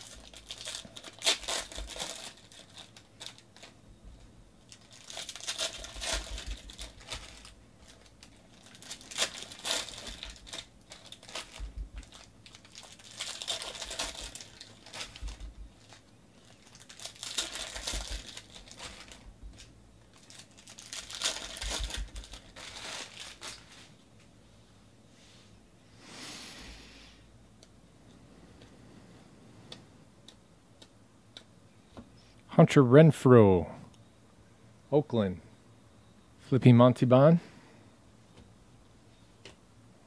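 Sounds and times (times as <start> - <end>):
foil wrappers tearing and crinkling: 0.0 - 3.8, 4.6 - 23.9.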